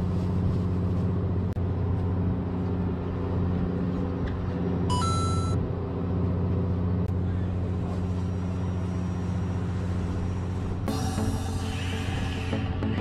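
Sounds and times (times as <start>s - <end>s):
brief high tone: 4.9s - 5.6s.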